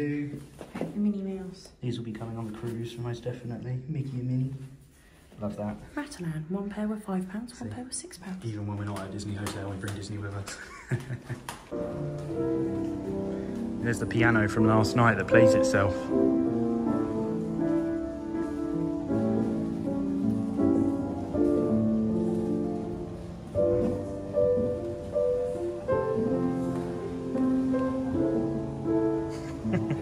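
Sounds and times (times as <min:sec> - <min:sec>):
self-playing piano chords: 0:11.7 - 0:30.0.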